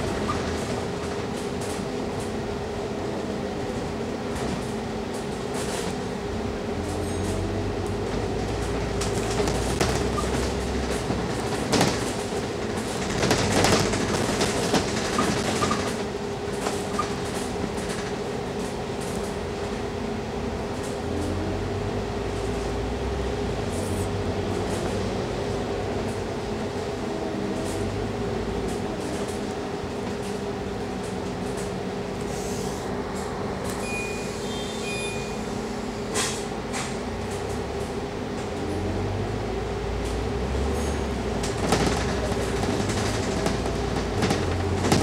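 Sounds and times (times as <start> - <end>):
bus engine whine and rumble: 0.0 - 45.0
bus body knocks and rattles: 8.1 - 19.4, 41.3 - 45.0.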